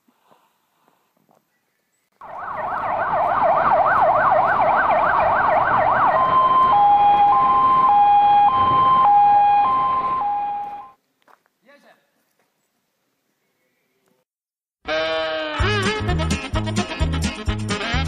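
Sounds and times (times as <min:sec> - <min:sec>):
ambulance siren: 0:02.2 - 0:11.0.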